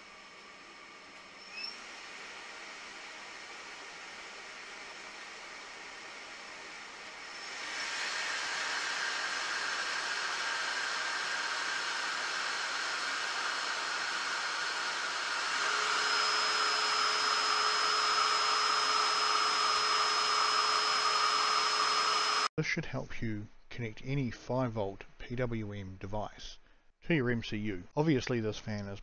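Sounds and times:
blower fan air rush: 0.0 - 22.5
steady fan whine: 0.0 - 22.5.

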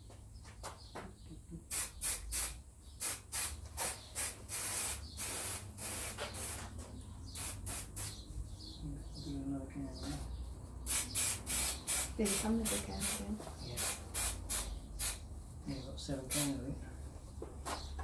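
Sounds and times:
aerosol can spraying: 1.7 - 6.7, 7.3 - 8.2, 10.9 - 15.2, 16.3 - 16.6.

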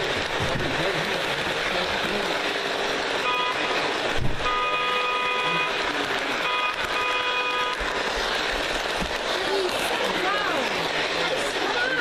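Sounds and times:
toy train running noise: 0.0 - 12.0
toy train electronic horn: 3.2 - 8.1.

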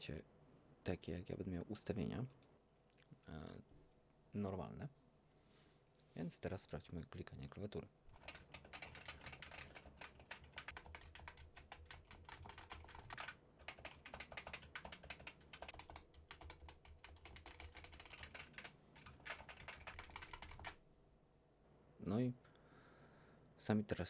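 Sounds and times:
fast typing on keyboard: 8.1 - 20.8.

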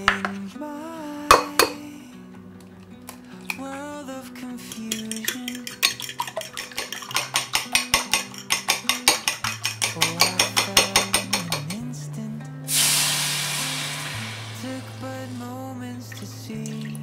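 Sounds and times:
soft background music: 0.0 - 17.0
fork whisking eggs in glass bowl: 4.7 - 11.8.

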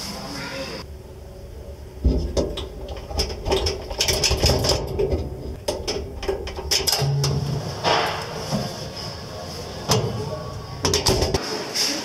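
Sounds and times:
sheet metal clicking and rattling: 0.9 - 8.8, 9.8 - 11.4.

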